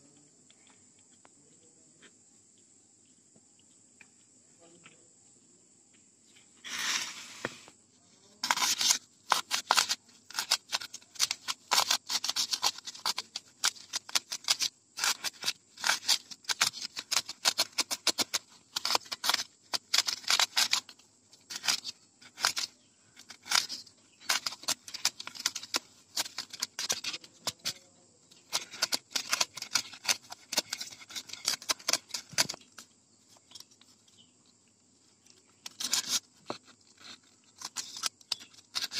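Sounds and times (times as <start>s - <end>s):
metal rod scraping foam: 6.6s - 7.7s, 8.3s - 32.8s, 35.6s - 38.9s.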